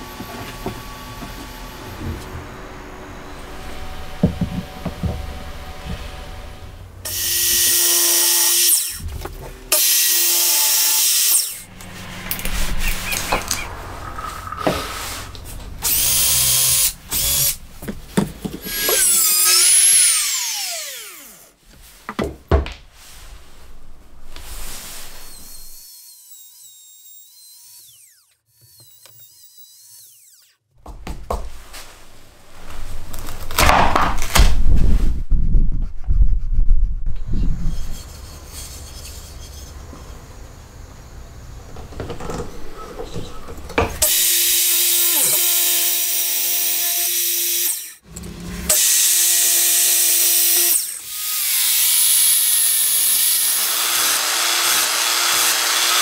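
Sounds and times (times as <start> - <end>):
trim router cutting wood: 0.0 - 9.0, 9.6 - 17.6, 18.6 - 21.5, 25.3 - 30.6, 44.0 - 56.0
motor whining down: 0.0 - 17.6.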